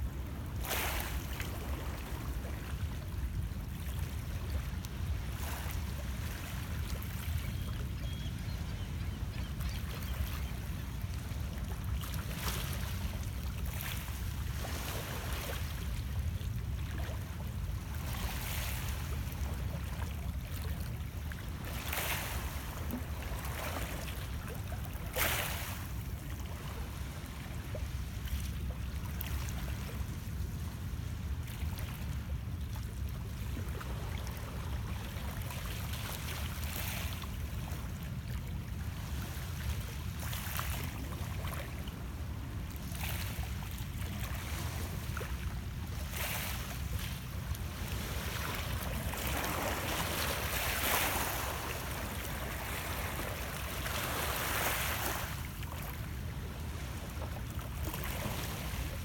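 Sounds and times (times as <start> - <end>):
waves lapping against rocks: 21.6 - 27.9, 33.3 - 59.0.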